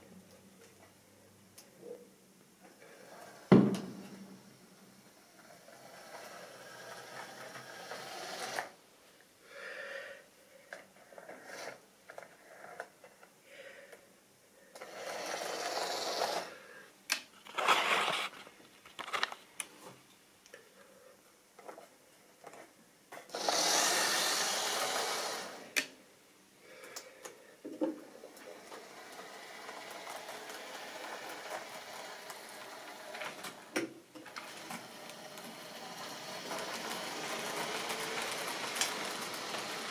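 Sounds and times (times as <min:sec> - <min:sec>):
small electric motor whirring: 0:05.7 - 0:08.8, 0:14.8 - 0:16.5, 0:23.3 - 0:25.8, 0:28.5 - 0:33.7, 0:34.4 - 0:39.9
plastic models clicking: 0:34.3 - 0:39.9.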